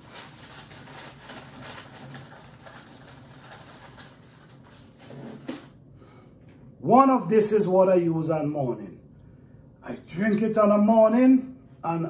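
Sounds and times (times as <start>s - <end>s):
low steady hum: 0.0s - 12.0s
objects rustling and knocking: 3.6s - 5.8s.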